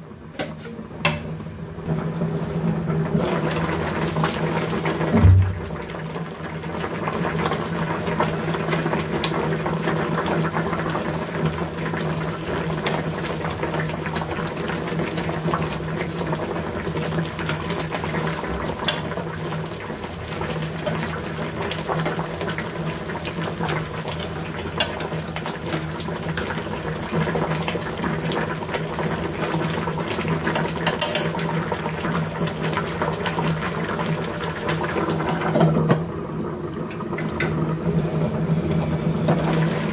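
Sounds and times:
low hum: 5.1s - 6.1s.

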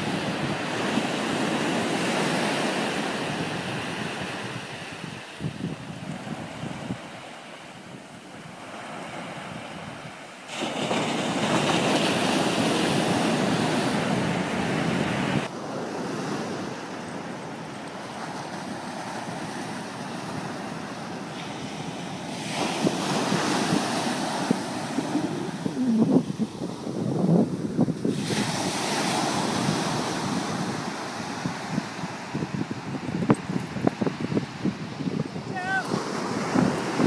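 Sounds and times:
wind buffeting microphone: 0.0s - 37.0s
surf breaking on beach: 8.4s - 37.0s.

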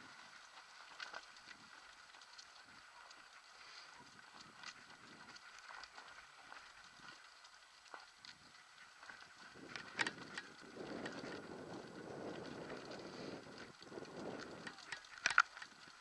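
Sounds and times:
mountain bike rattling on rocky trail: 0.0s - 16.0s
wheels knocking on stones: 4.1s - 16.0s.

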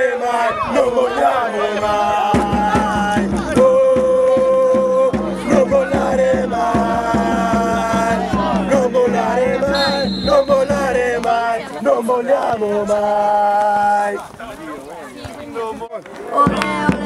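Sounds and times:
voices singing long notes: 0.0s - 14.0s
low steady beat: 2.2s - 11.6s.

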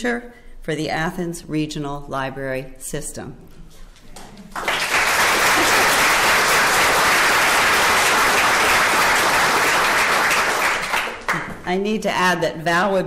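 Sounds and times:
audience applauding: 4.5s - 11.6s.

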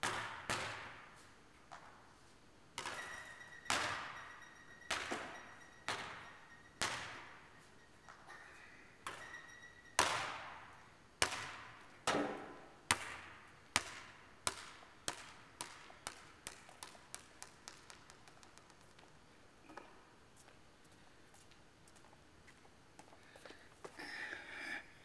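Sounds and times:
basketball bouncing on gym floor: 0.0s - 1.9s, 2.8s - 7.5s, 9.0s - 19.1s.

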